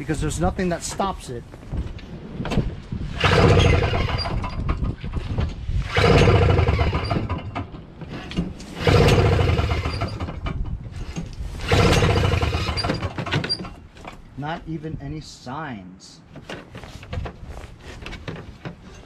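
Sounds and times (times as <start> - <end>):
engine pull-start cranking without firing: 3.1 - 13.8.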